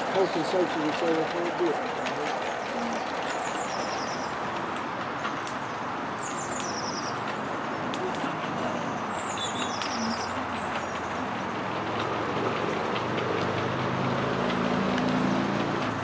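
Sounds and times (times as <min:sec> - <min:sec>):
model steam locomotive hissing: 0:00.0 - 0:04.7
small bird calling: 0:00.0 - 0:11.5.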